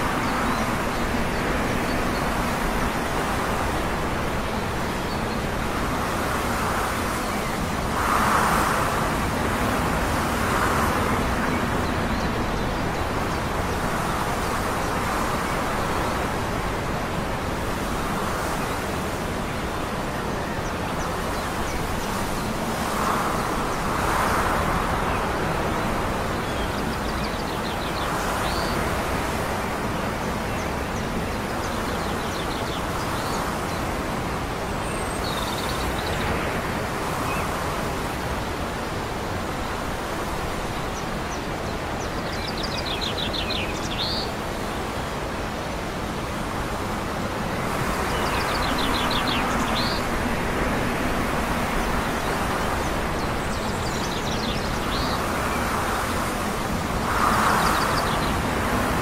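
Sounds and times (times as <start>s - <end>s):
small birds chirping: 40.8s - 45.8s, 47.5s - 59.0s.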